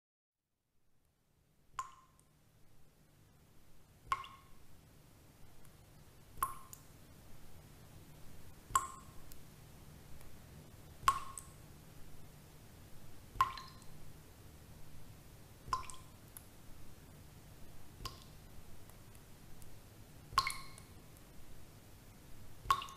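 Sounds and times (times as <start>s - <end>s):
water drips ringing: 4.1s - 4.6s, 8.8s - 9.2s, 11.0s - 11.6s, 13.4s - 14.0s, 15.7s - 16.4s, 20.4s - 21.0s, 22.6s - 22.9s.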